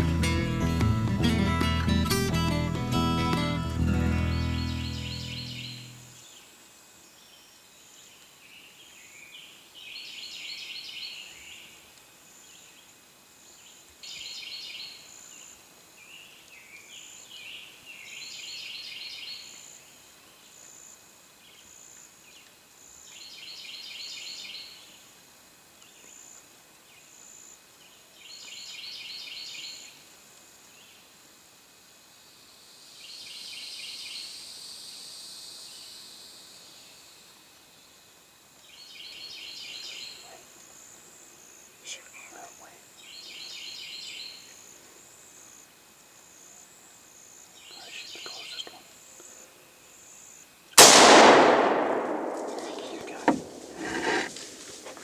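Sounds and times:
insects chirping: 0:03.9 - 0:55.0
soft bird calls: 0:47.6 - 0:49.4, 0:52.0 - 0:54.7.

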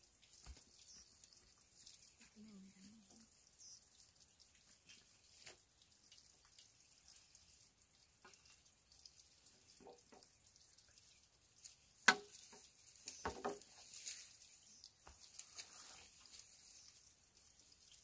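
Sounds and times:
sharp knocks and clicks: 0:12.0 - 0:12.6, 0:13.2 - 0:13.6
rustling: 0:12.3 - 0:17.1.

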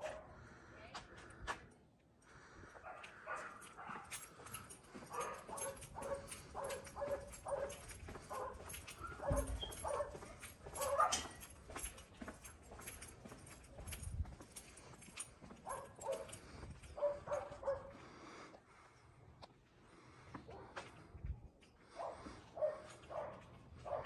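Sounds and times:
dog barking: 0:00.0 - 0:00.4, 0:02.8 - 0:11.5, 0:15.6 - 0:16.4, 0:17.0 - 0:18.0, 0:22.0 - 0:24.0.

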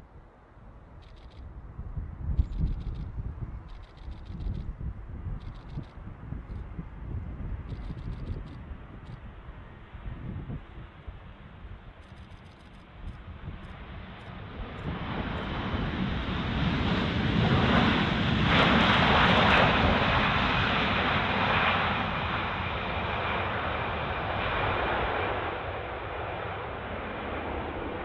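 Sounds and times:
jet engines roaring: 0:07.4 - 0:28.0.

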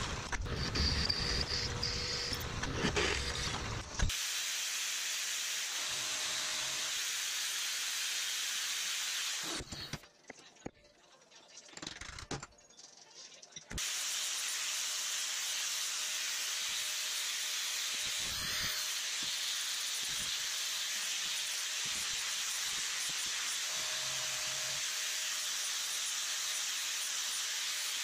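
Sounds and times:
angle grinder grinding steel: 0:00.0 - 0:04.1, 0:13.8 - 0:28.0.

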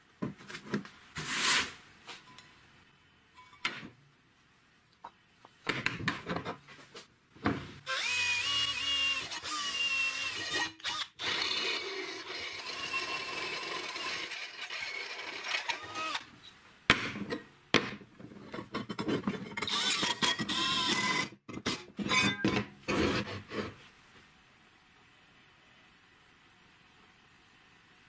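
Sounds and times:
drill press whining through metal: 0:07.9 - 0:16.2.

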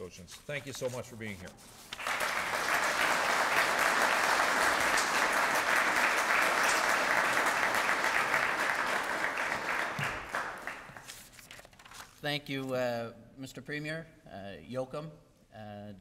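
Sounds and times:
audience applauding: 0:02.0 - 0:11.2.

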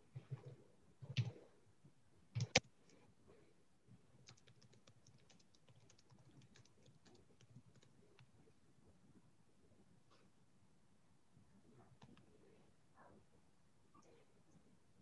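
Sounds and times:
typing on computer keyboard: 0:01.0 - 0:01.4, 0:02.4 - 0:02.6, 0:04.2 - 0:08.3.

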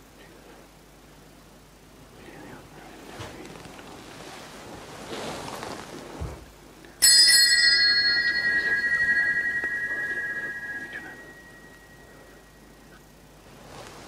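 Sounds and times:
bell ringing: 0:07.0 - 0:12.5.

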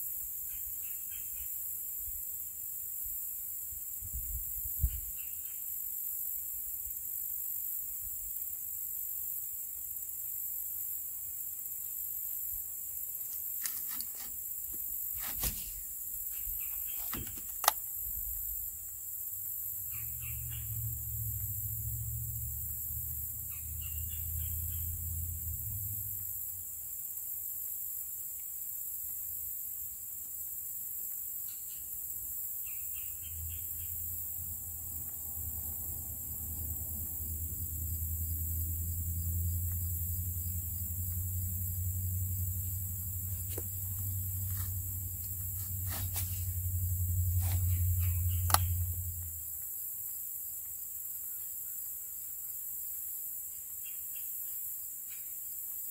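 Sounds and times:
sharp clicks and knocks: 0:16.8 - 0:17.8, 0:48.4 - 0:48.8
faint bird chirps: 0:19.8 - 0:20.9, 0:47.5 - 0:49.1.

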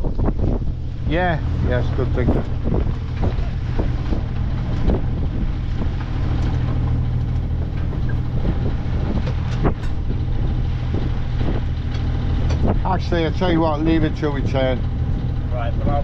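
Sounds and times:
boat engine droning: 0:00.0 - 0:16.0
wind rushing: 0:00.0 - 0:16.0.

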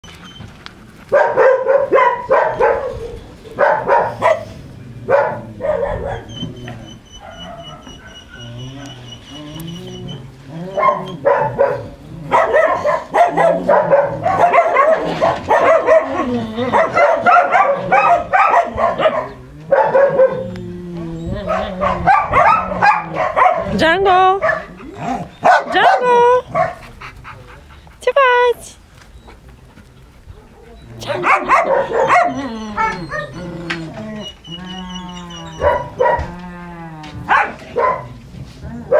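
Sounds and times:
dogs barking: 0:01.1 - 0:09.2, 0:10.7 - 0:20.6, 0:21.4 - 0:27.5, 0:30.3 - 0:33.5, 0:34.2 - 0:36.4, 0:37.2 - 0:38.2
long low animal calls: 0:05.6 - 0:11.3, 0:20.4 - 0:23.3, 0:31.9 - 0:37.3.

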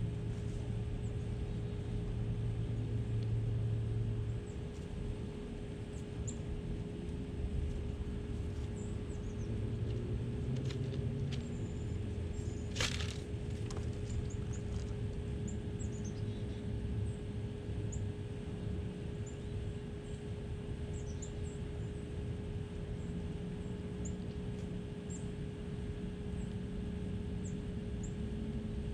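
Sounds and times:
small birds chirping: 0:08.6 - 0:09.6, 0:11.3 - 0:17.3, 0:20.9 - 0:22.0.

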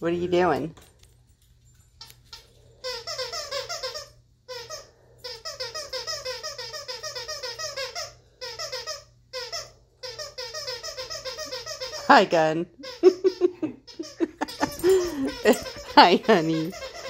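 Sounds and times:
squeaky toy squeaking: 0:02.0 - 0:17.0.

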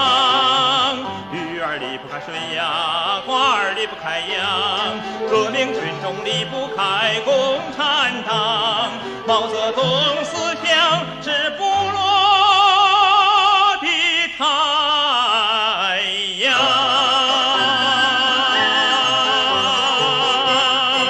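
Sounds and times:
instrumental accompaniment: 0:00.0 - 0:12.1, 0:16.6 - 0:21.0
operatic solo singing: 0:00.0 - 0:21.0.

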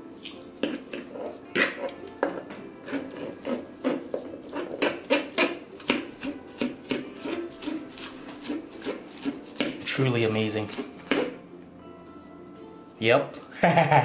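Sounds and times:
forks shredding meat: 0:00.4 - 0:11.4.

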